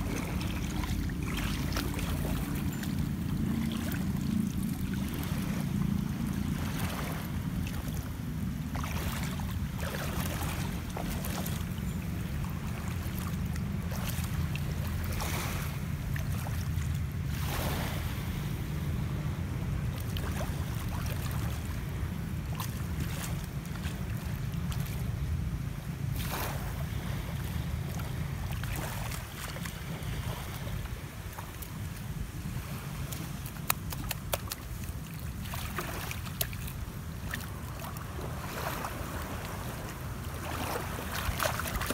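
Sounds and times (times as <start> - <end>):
feet wading through water: 0.0 - 41.9
shallow sea water washing: 0.0 - 41.9.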